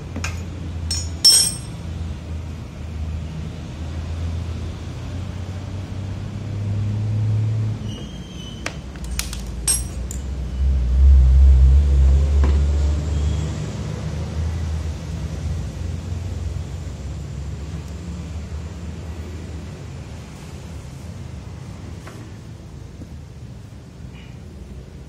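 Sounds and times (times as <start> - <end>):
road traffic rumble: 0.0 - 25.0
sharp clicks and clinks: 0.9 - 1.8, 9.0 - 10.3.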